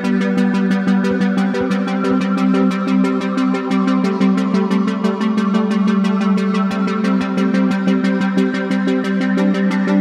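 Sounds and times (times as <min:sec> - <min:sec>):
electronic music with fast beat: 0:00.0 - 0:10.0.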